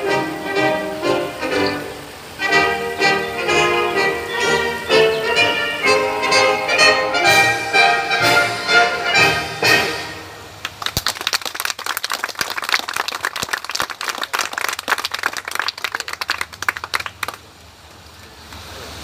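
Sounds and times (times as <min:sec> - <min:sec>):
crowd applauding: 0:10.6 - 0:17.5.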